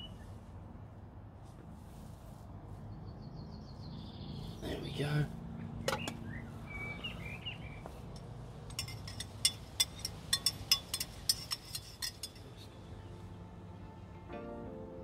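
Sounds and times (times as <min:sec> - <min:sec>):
spoon clinking in metal mug: 0:08.2 - 0:12.5.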